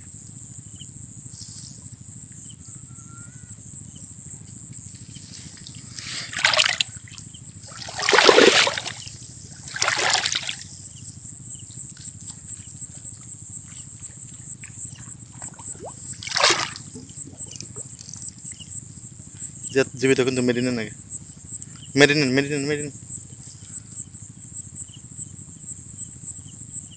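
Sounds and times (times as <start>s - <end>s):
crickets chirping: 0.0s - 26.9s
wet net hauled from water: 5.5s - 10.7s, 14.9s - 18.0s
water splashing and pouring: 6.1s - 7.0s, 7.6s - 10.6s, 15.4s - 18.0s.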